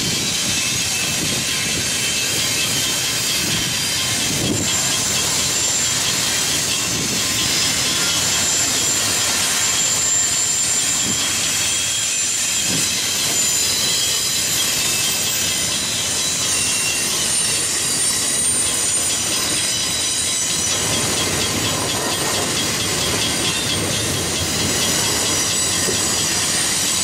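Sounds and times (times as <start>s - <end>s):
train wheels rumbling on rail: 0.0s - 27.0s
high-pitched wheel squeal: 0.1s - 27.0s
low clunks of rail cars: 18.4s - 27.0s.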